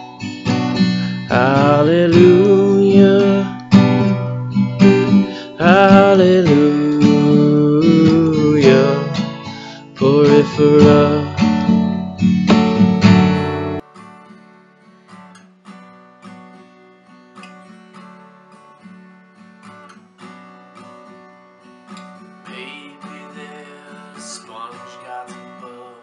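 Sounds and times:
acoustic guitar picked softly: 0.0 - 26.0.

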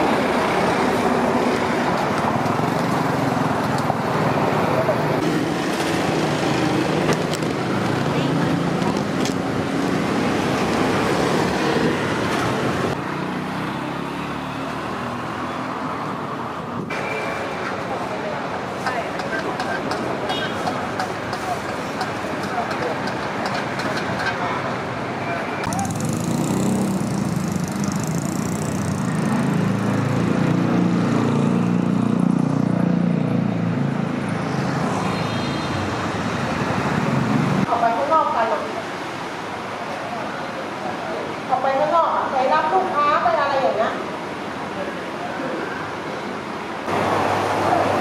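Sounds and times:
road traffic noise: 0.0 - 48.0
small vehicle engine running: 25.7 - 30.0.

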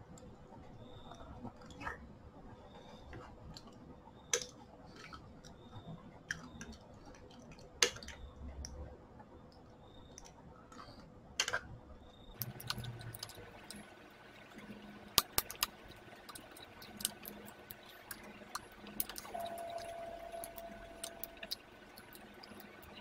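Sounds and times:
spoon clinking against bowl: 19.0 - 22.7.

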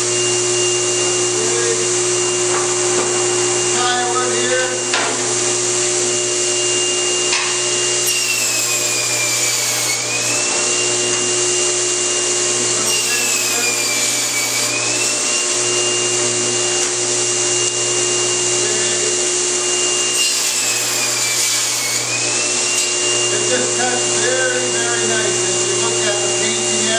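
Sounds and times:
high blade whine: 0.0 - 26.9
table saw cutting wood: 0.0 - 26.9.

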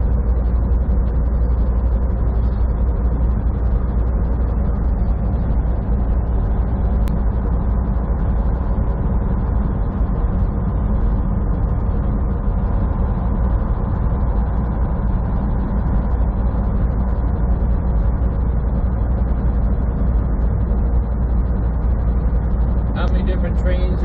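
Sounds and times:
diesel engine drone: 0.0 - 24.0
faint steady hum: 0.0 - 24.0.

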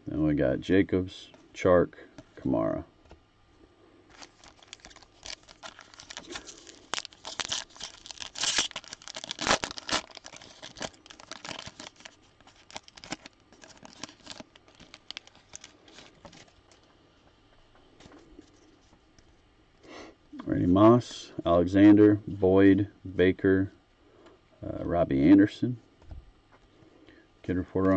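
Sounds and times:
foil wrapper tearing and crinkling: 4.1 - 16.6.

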